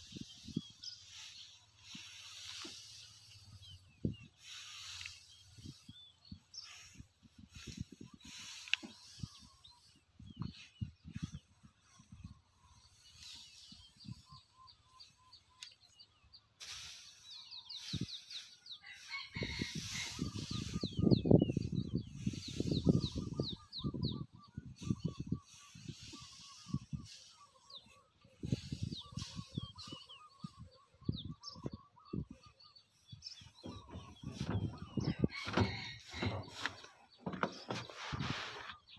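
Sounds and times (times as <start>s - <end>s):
straw rustling: 0.0s - 12.2s, 33.4s - 38.9s
birds chirping: 0.0s - 38.9s
low thumps: 33.4s - 38.0s.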